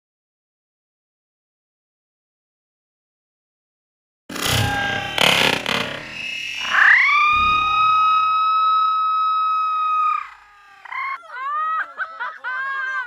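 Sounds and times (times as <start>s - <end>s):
child laughing: 10.8s - 13.0s.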